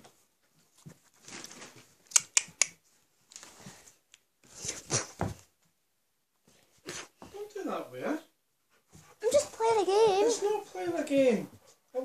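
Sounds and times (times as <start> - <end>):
plastic bag rustling: 1.0 - 2.0.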